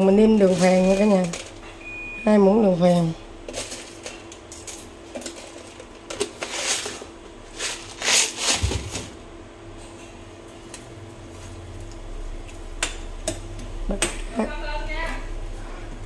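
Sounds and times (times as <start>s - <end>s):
low steady hum: 0.0s - 16.0s
rustling and scraping: 3.5s - 9.2s.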